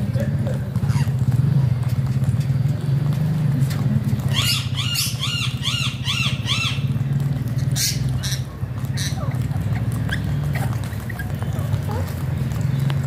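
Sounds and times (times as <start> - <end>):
parakeet squawking: 4.3 - 6.9, 7.6 - 11.4.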